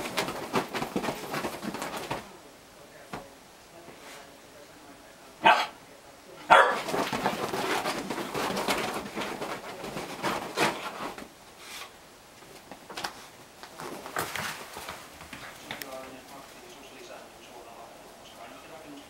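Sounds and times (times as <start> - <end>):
dog scuffling on duvet: 0.0 - 2.3, 6.5 - 11.9, 13.1 - 16.2
dog barking: 5.4 - 5.8, 6.5 - 6.9.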